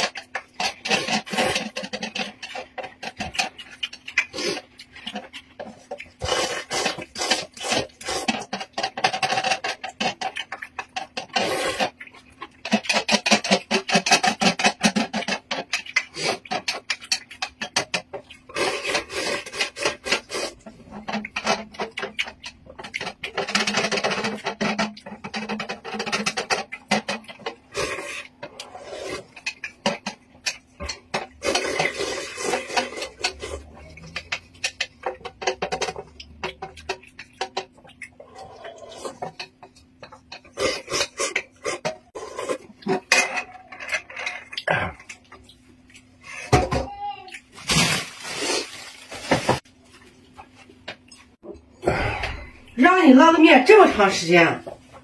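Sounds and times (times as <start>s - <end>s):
noodles slurped: 0.0s - 30.1s, 30.7s - 35.4s.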